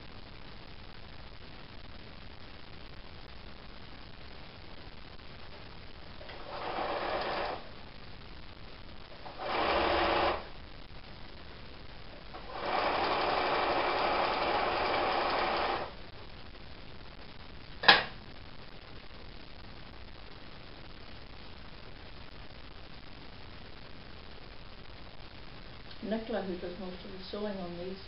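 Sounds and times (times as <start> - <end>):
electric sewing machine stitching: 6.2 - 7.7, 9.2 - 10.5, 12.3 - 15.9.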